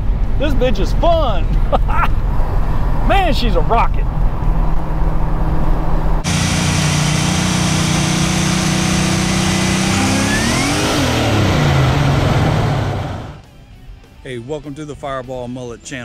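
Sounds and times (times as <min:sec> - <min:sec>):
road and wind hiss: 0:00.0 - 0:13.4
car engine running and revving: 0:04.1 - 0:13.4.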